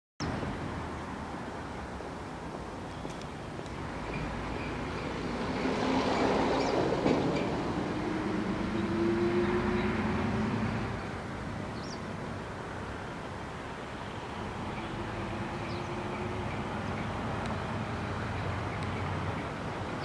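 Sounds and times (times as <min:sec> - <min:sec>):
vehicle passing by: 0:03.8 - 0:12.3, 0:14.0 - 0:20.0.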